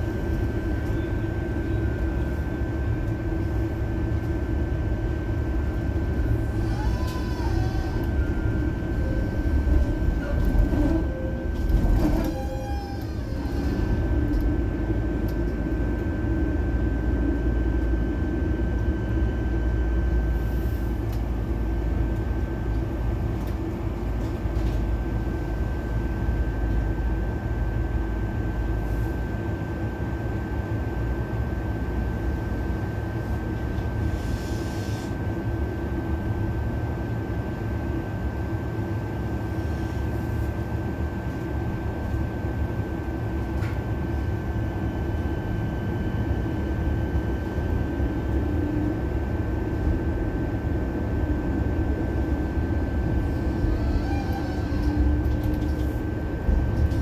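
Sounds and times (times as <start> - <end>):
tram rumbling on rails: 0.0 - 19.0, 19.9 - 28.8, 30.7 - 57.0.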